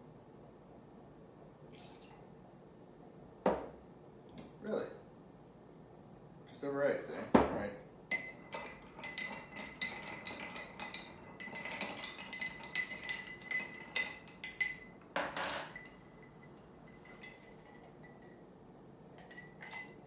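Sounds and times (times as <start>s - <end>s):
spoon clinking glass and ice: 8.1s - 18.4s, 19.2s - 20.0s.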